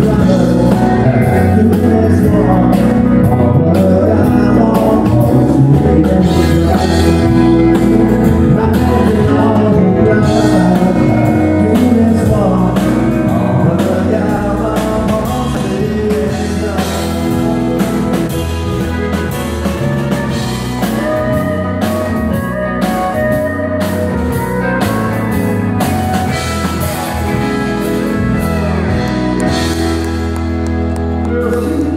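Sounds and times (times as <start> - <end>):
live country band playing: 0.0 - 31.9
person singing: 0.0 - 31.9.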